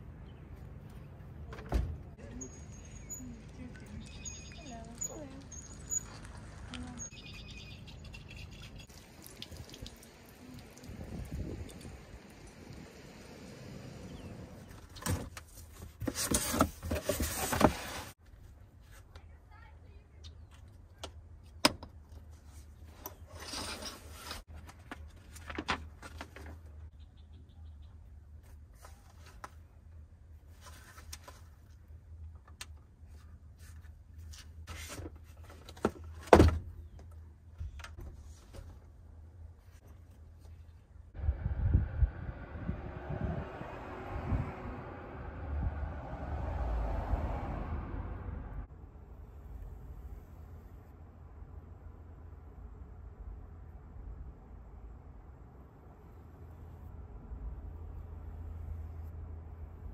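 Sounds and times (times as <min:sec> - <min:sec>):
cardboard box rustling and scraping: 0:15.1 - 0:18.2
low rumble: 0:41.2 - 0:48.7.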